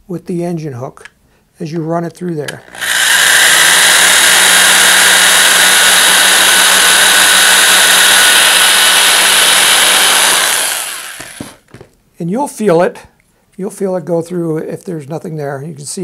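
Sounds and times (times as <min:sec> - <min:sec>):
electric drill cutting: 0:02.6 - 0:11.7.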